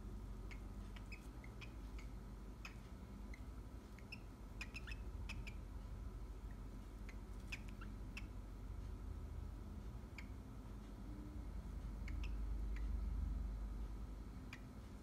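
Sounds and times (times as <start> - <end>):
cockatiel chirping: 0.4 - 5.8, 6.5 - 8.4, 10.1 - 10.4, 11.9 - 13.0, 14.5 - 14.8.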